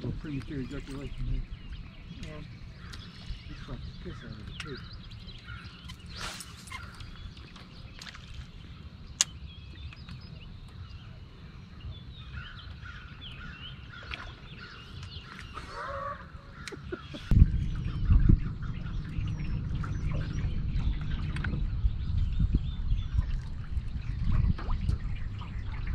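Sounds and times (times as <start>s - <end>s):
small birds chirping: 0.0s - 25.9s
low rumble with thumps: 17.2s - 25.9s
low steady rumble: 17.2s - 25.9s.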